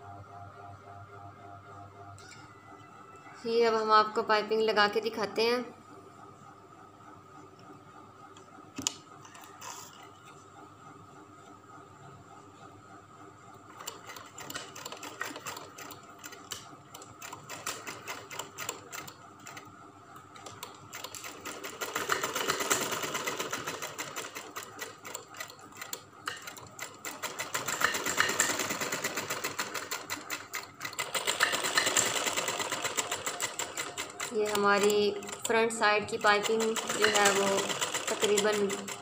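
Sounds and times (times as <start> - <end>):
sewing machine stitching: 13.7 - 19.7, 20.4 - 39.0.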